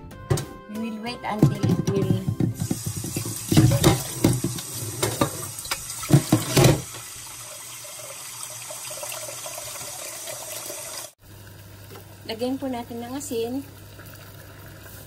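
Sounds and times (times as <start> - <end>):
water running from tap: 2.3 - 11.2.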